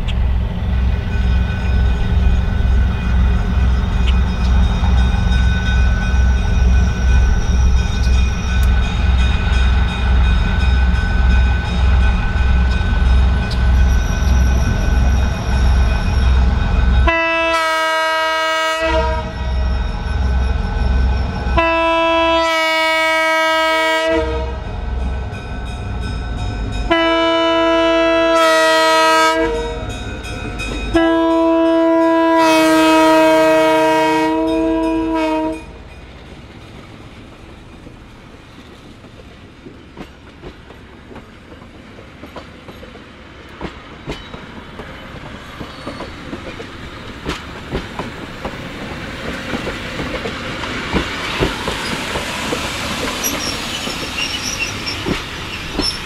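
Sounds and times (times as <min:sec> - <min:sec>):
train wheels clicking over rail joints: 0:00.0 - 0:17.1, 0:35.9 - 0:56.0
locomotive air horn blasts: 0:17.0 - 0:19.5, 0:21.6 - 0:24.7, 0:26.9 - 0:29.9, 0:30.9 - 0:35.8.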